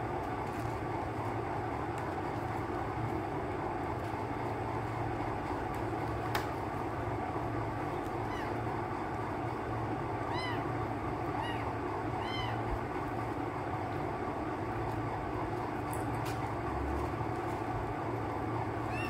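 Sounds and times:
steady low hum: 0.0s - 19.0s
cat meowing: 8.2s - 8.7s, 10.2s - 12.7s.

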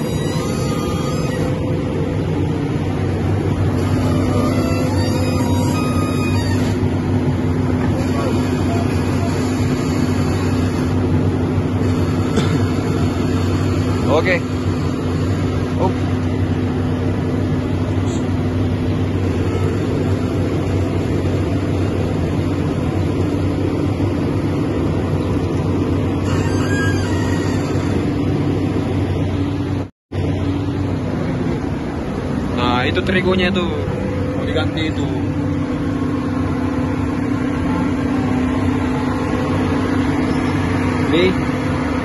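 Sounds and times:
diesel engine idling: 0.0s - 42.0s.

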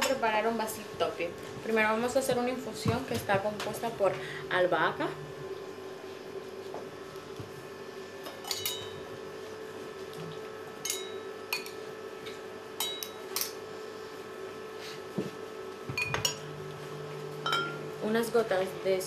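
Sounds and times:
steady low hum: 0.0s - 19.0s
metal utensil clinking ceramic bowl: 8.4s - 9.0s.

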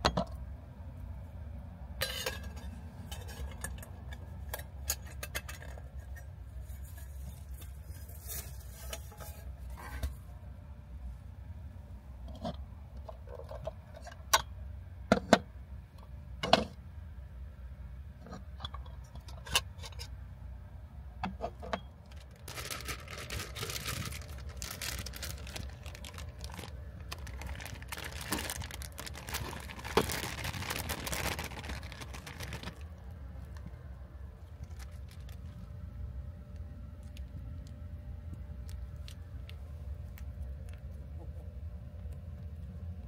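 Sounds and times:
plastic bag crinkling: 22.0s - 33.8s, 34.4s - 35.8s.

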